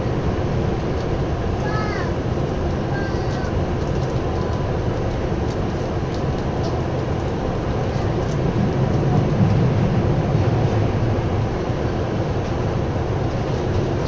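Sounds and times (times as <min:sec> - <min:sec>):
train rumble from inside: 0:00.0 - 0:14.0.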